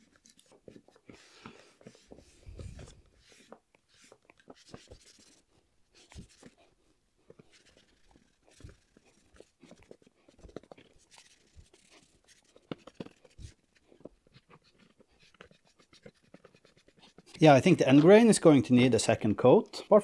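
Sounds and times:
rag rubbing on wood: 7.5 - 13.8.

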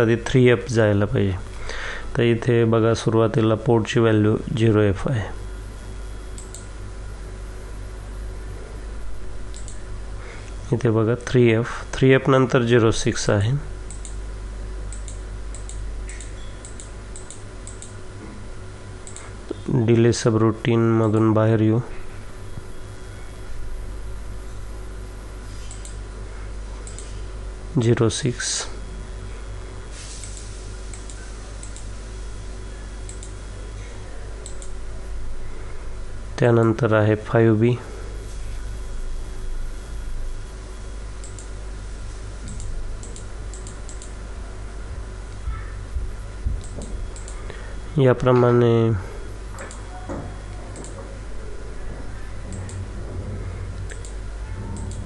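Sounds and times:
steady low hum: 0.0 - 55.0
computer mouse clicks: 6.4 - 6.7, 9.5 - 9.8, 13.9 - 14.2, 14.9 - 18.0, 19.0 - 19.6, 25.6 - 26.0, 26.8 - 27.1, 30.2 - 31.9, 33.1 - 33.4, 34.4 - 34.8, 41.2 - 41.5, 42.4 - 44.2, 46.6 - 47.5, 49.6 - 49.9, 50.7 - 51.0, 52.5 - 52.9, 53.8 - 55.0.

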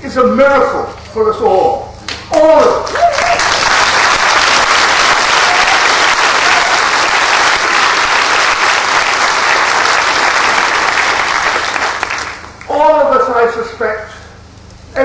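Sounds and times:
audience applauding: 2.6 - 12.7.

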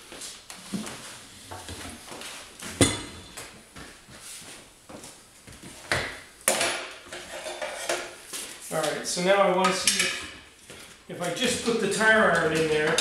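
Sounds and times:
steel bar clanking and scraping: 7.1 - 8.1.

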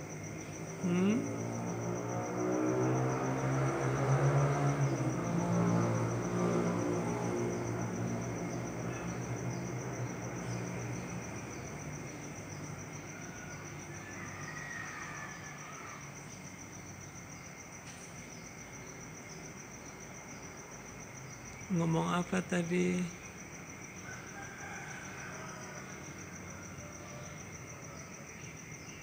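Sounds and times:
high-pitched insect trill: 0.0 - 29.0.

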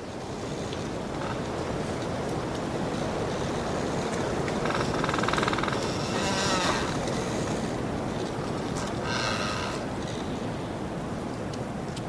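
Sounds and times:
wind through trees: 0.0 - 12.0
wood creaking: 4.5 - 7.7, 8.8 - 10.2.

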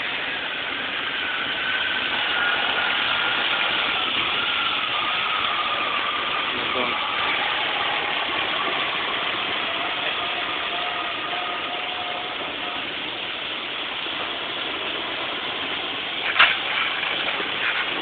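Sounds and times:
fire burning fiercely: 0.0 - 18.0
sharp crack: 15.7 - 18.0.

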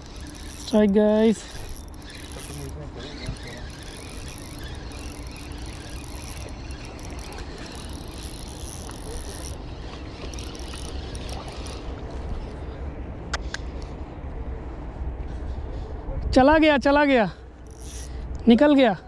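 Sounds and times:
fishing reel whirring: 0.0 - 12.6, 17.6 - 18.2.

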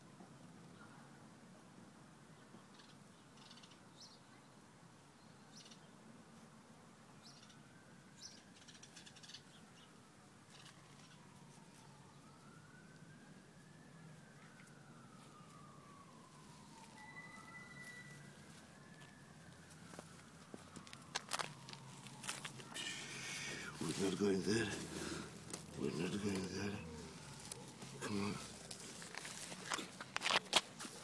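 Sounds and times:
distant siren wailing: 7.4 - 31.0.

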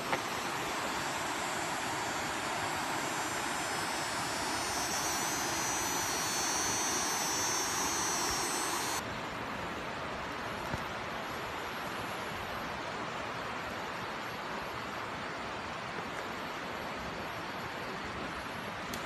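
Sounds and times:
high shrill tone: 0.0 - 9.0.

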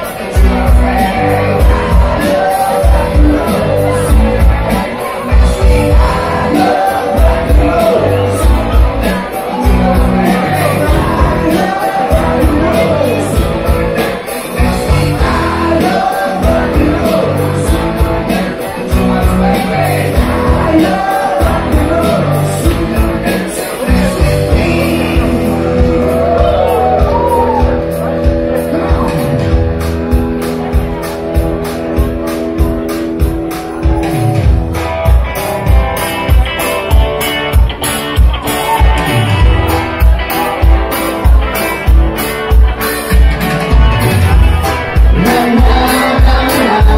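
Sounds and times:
lead singer singing: 0.0 - 29.6, 44.2 - 46.9
live band playing: 0.0 - 46.9.

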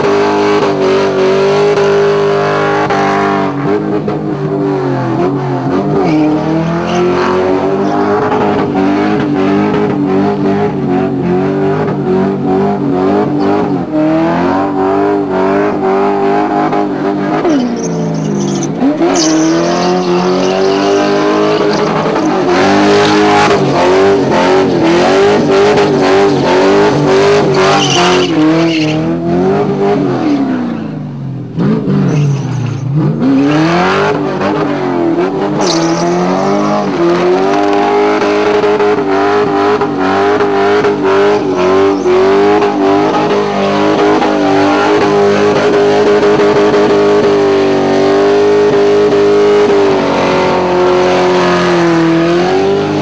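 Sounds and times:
car engine revving high: 0.0 - 53.0
tyres screeching: 17.2 - 29.2, 32.0 - 33.0, 35.4 - 38.1, 40.0 - 45.2.

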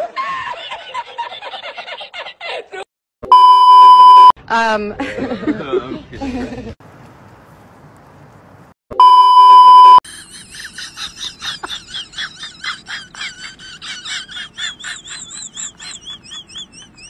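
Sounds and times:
censor bleep tone: 3.3 - 4.3, 9.0 - 10.0.

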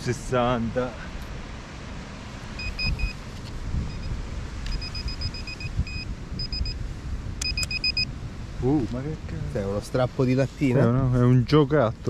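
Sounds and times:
wind rumbling on microphone: 0.0 - 12.0
metal detector beeping: 2.6 - 3.2, 3.8 - 6.8, 7.4 - 8.1.

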